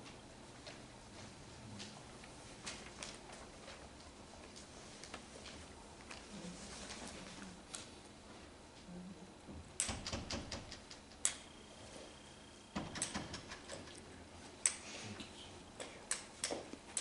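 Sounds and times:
faint high steady tone: 11.4s - 12.8s.

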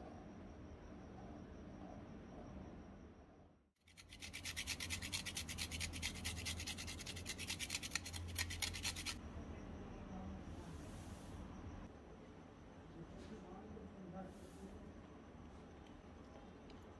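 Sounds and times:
carrot grated on metal grater: 3.9s - 9.2s.

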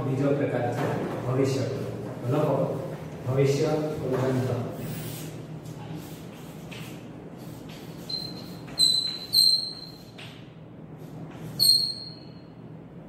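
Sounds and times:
chalk scratching on chalkboard: 4.3s - 10.4s
chalk squeaks: 6.0s - 10.4s, 11.3s - 12.5s.

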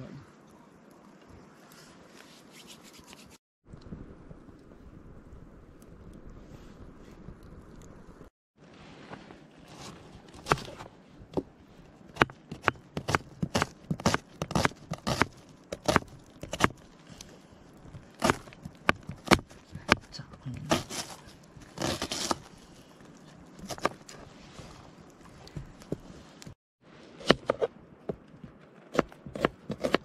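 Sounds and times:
knife chopping on cutting board: 29.0s - 30.0s.

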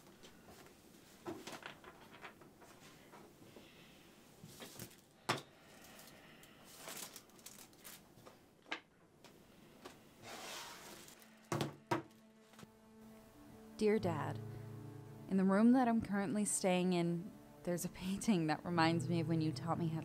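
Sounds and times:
paper rustling: 4.4s - 5.1s, 6.7s - 8.4s, 10.2s - 11.5s
quiet music: 9.4s - 20.0s.

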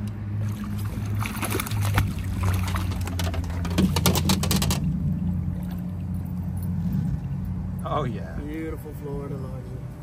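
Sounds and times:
steady low hum: 0.0s - 10.0s
fish thrashing and splashing water: 0.2s - 7.4s.

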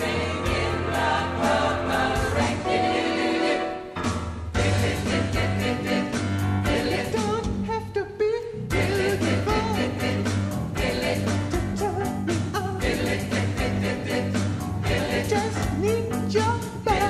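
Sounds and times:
drums with steady beat: 0.0s - 2.7s, 4.0s - 7.9s, 8.6s - 17.0s
piano: 0.0s - 7.8s, 8.7s - 17.0s
pop choir singing: 0.0s - 7.8s, 8.7s - 17.0s
bass guitar: 4.0s - 8.0s, 8.6s - 17.0s.

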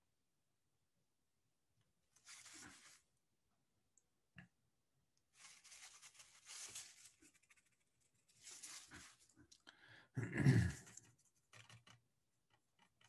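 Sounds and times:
brush scratching on paper: 2.2s - 3.1s, 5.4s - 9.4s.

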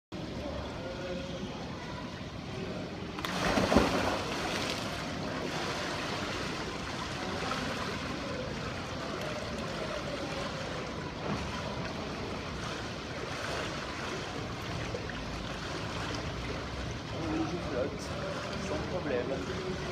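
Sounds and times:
water sloshing: 3.0s - 19.9s
person splashing into pool: 3.2s - 5.0s.

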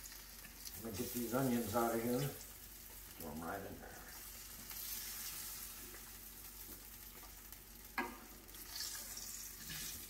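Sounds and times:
fat sizzling in a skillet: 0.0s - 10.0s.

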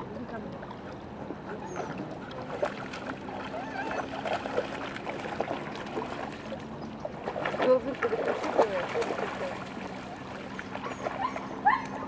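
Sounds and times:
dogs splashing in water: 0.2s - 12.0s.

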